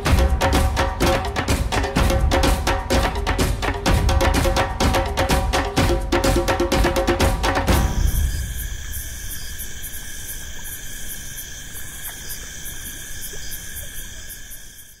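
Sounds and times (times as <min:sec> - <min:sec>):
pulsing cricket chirp: 0:00.0 - 0:15.0
insects trilling: 0:04.6 - 0:15.0.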